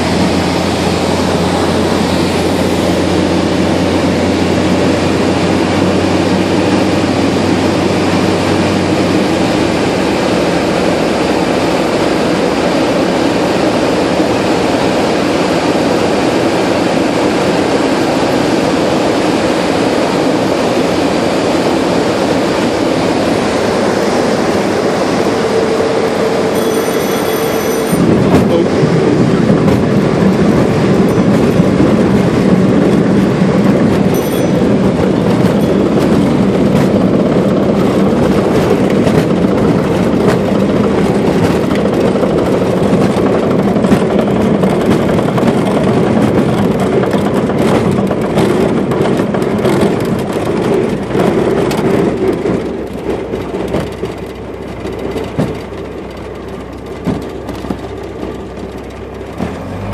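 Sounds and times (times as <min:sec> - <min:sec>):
aircraft engine and propeller: 0:00.0 - 0:59.9
wheels rumbling over grass: 0:17.4 - 0:59.9.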